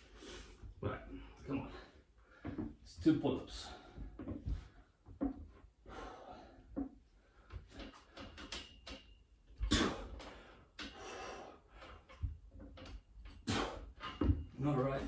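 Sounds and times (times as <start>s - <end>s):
man breathing heavily: 5.8s - 8.4s, 9.7s - 12.2s.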